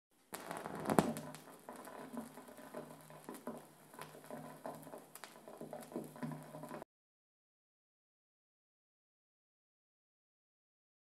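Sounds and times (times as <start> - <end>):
vinyl surface crackle and pops: 0.2 - 6.8.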